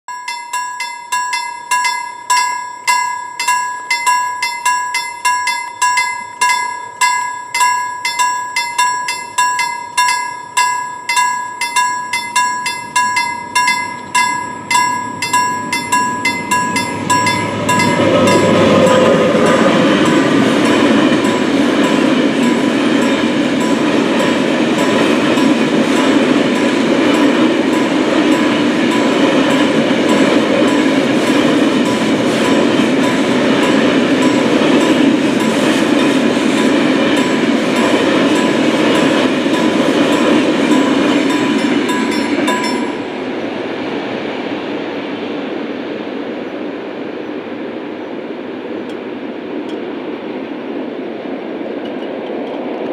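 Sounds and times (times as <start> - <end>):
level crossing bell ringing: 0.1 - 43.2
freight train wagons rumbling: 0.2 - 52.9.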